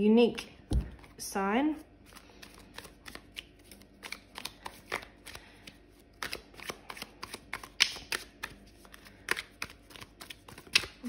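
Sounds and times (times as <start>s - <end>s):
cards being shuffled: 2.1s - 11.0s
card flicks and slaps: 7.2s - 8.5s.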